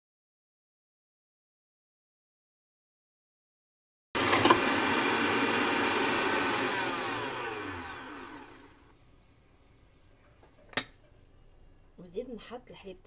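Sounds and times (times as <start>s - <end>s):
stand mixer motor whining: 4.2s - 8.9s.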